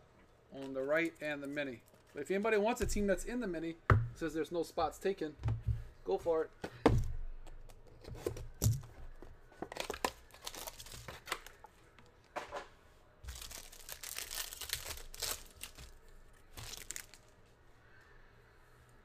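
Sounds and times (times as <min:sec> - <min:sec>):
plastic wrap ripping and crinkling: 0:09.7 - 0:11.6, 0:13.2 - 0:17.3.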